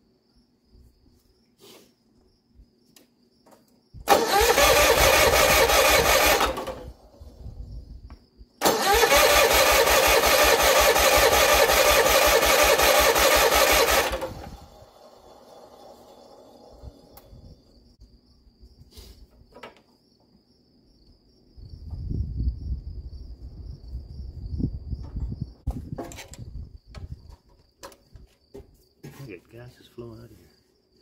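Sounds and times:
tractor engine cranking: 4.1s - 7.0s, 8.6s - 17.3s.

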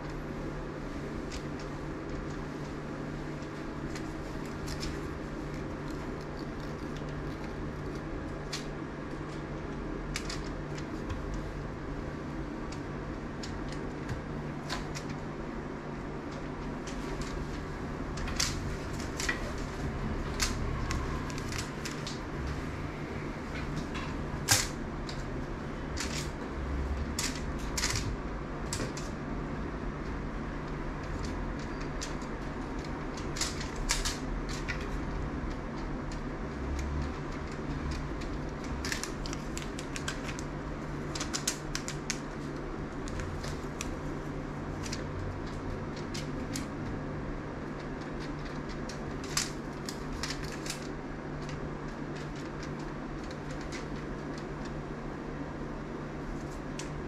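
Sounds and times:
indoor room hum: 0.0s - 57.0s.

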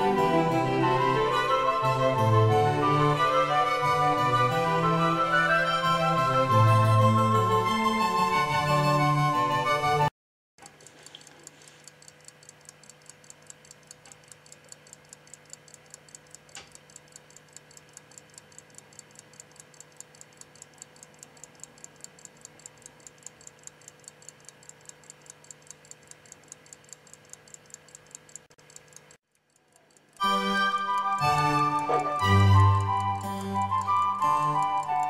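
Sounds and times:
pocket watch ticking: 10.6s - 35.0s.

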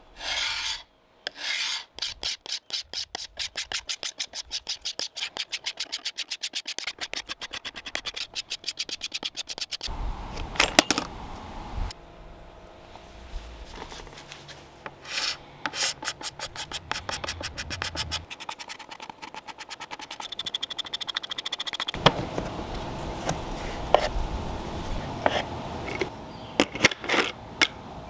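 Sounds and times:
paint scraper rasping on wood: 0.2s - 9.9s, 15.0s - 22.0s.

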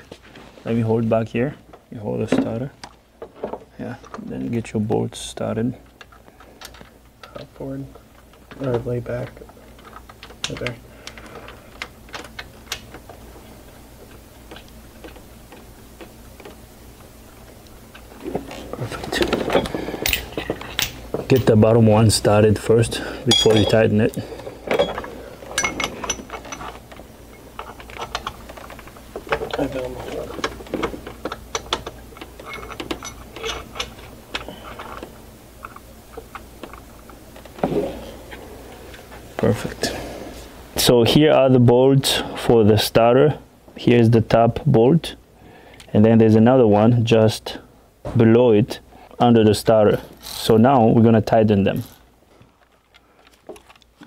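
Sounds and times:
steady low hum: 0.0s - 54.0s
metal parts clicking and tapping: 19.4s - 21.6s, 23.3s - 23.8s, 24.7s - 26.9s, 27.6s - 36.8s.

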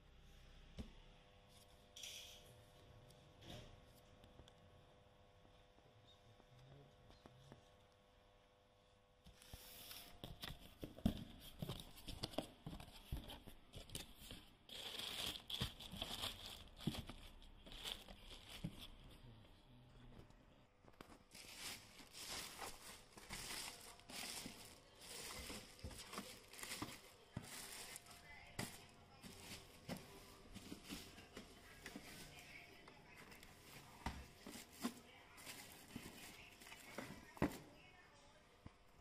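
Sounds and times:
plastic bag crinkling: 14.0s - 19.1s, 21.2s - 37.4s.

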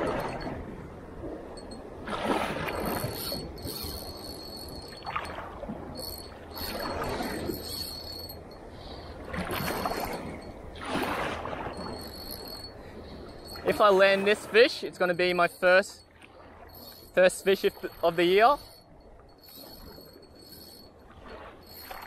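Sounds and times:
small waves washing against rocks: 9.2s - 12.0s.

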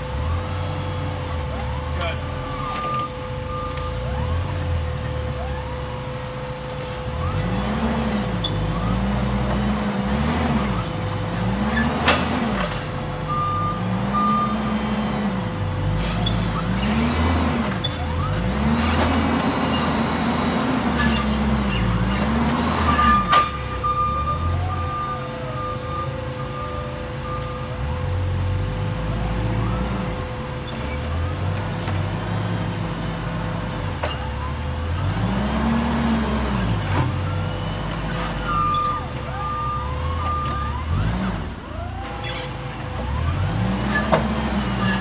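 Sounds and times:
heavy equipment engine surging: 0.0s - 45.0s.

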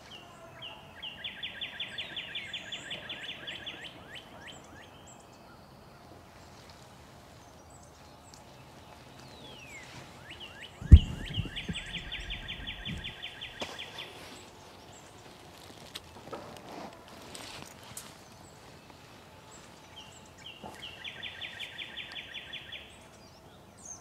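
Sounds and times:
songbirds singing: 0.0s - 15.9s, 17.9s - 24.0s
loud thump: 10.8s - 13.1s
low knocks: 10.8s - 13.2s.

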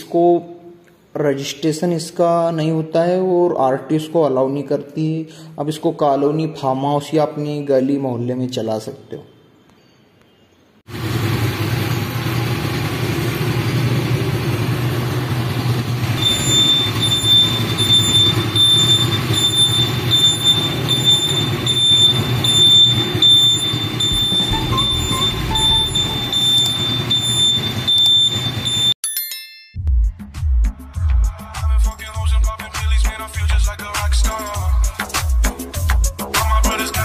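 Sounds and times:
engine idling: 10.9s - 28.9s.

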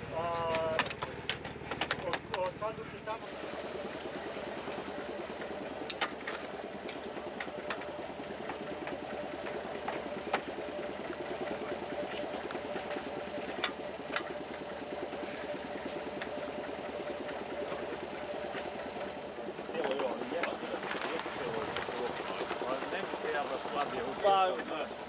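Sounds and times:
engine idling: 0.0s - 25.0s
sharp metal clicks and knocks: 0.5s - 2.7s.

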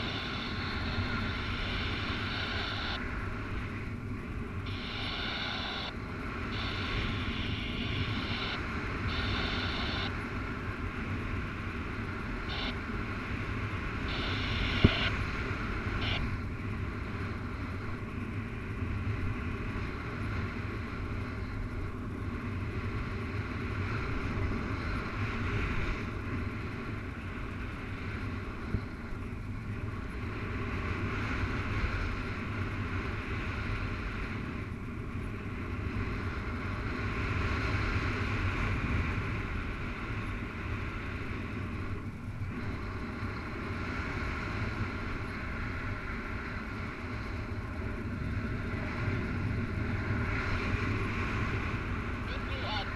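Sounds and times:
wind rumble on microphone: 0.0s - 52.9s.

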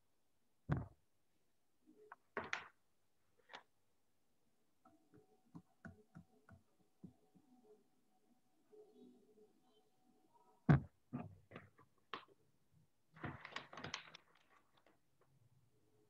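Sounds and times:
faint clicks and taps: 4.8s - 7.7s.

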